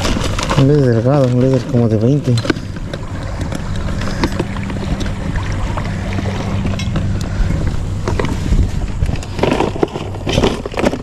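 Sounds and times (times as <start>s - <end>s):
plastic boxes clicking and rustling: 0.0s - 5.1s, 8.0s - 11.0s
steady low hum: 0.0s - 11.0s
wind on microphone: 0.0s - 11.0s.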